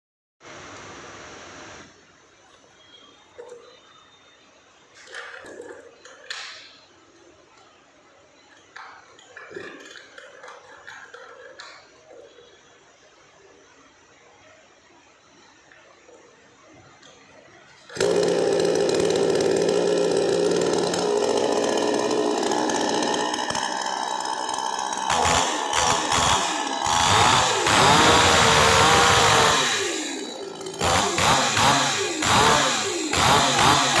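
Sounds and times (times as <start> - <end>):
chainsaw starting: 5.0 - 6.7, 8.7 - 12.3, 17.8 - 34.0
chainsaw idling: 17.9 - 34.0
chainsaw revving: 17.9 - 34.0.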